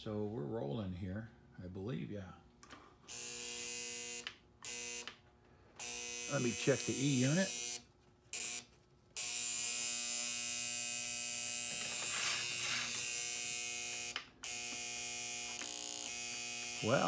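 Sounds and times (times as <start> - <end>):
electric buzz from toy train: 3.1 - 5.2, 5.8 - 17.0.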